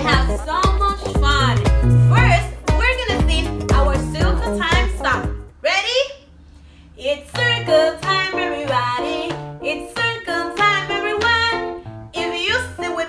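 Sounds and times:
plucked string accompaniment: 0.0s - 4.8s
children's song singing: 0.0s - 5.3s, 7.0s - 13.0s.

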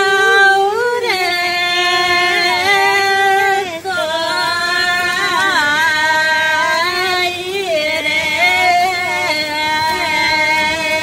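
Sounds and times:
high voice singing ornamented notes: 0.0s - 1.3s
low held drone note: 0.0s - 11.0s.

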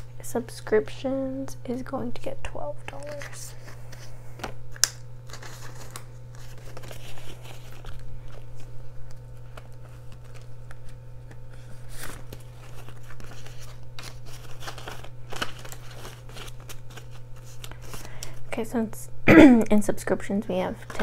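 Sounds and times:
steady low hum: 0.0s - 21.0s
paper bills rustling: 5.2s - 18.4s, 20.8s - 21.0s.

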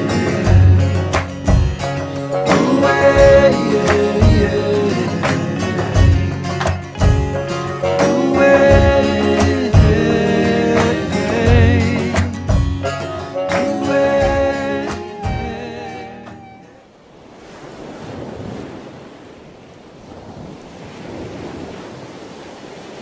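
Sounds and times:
song music: 0.0s - 16.8s
ocean waves: 0.0s - 23.0s.

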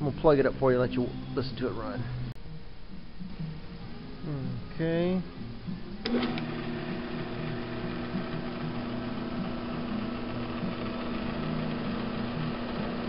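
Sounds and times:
drill press switch click: 6.0s - 6.6s
drill press motor humming: 6.0s - 13.0s.

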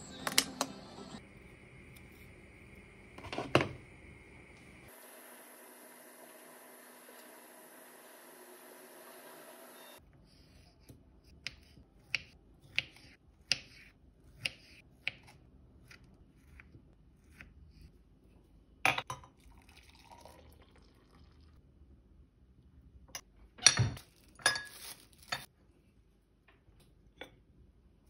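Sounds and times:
milk pouring into mug: 19.3s - 21.6s.

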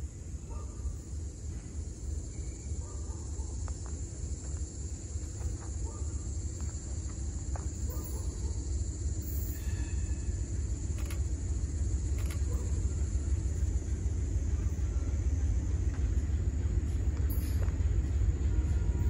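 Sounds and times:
insect buzz: 0.0s - 16.2s
distant diesel locomotive rumble: 0.0s - 19.0s
faint bird chirps: 9.2s - 11.2s.

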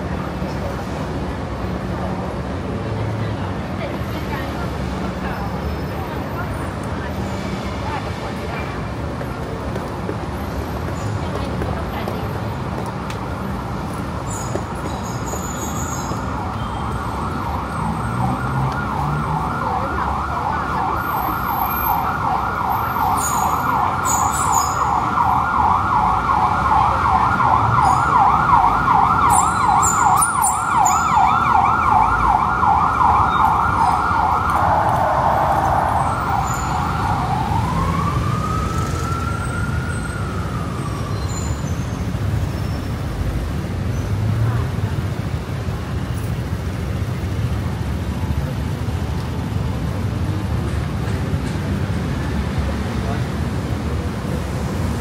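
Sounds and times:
road traffic noise: 0.0s - 55.0s
emergency siren: 15.7s - 42.6s.

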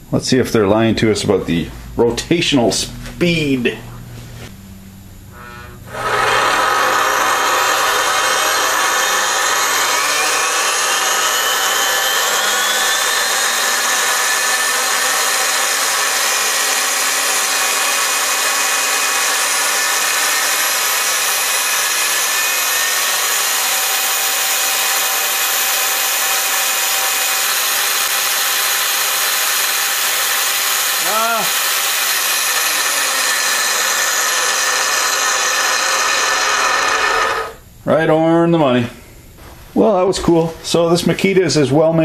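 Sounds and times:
circular saw motor whining: 5.2s - 37.7s.

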